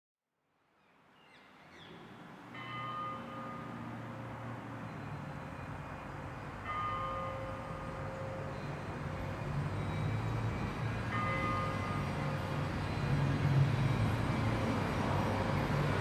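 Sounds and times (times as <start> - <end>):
church bell ringing: 2.5 - 16.0.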